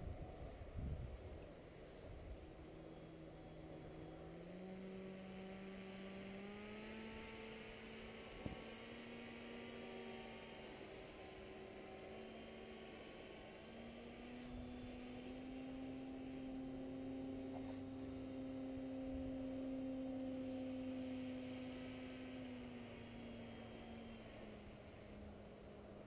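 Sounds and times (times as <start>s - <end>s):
distant paramotor droning: 0.0s - 26.0s.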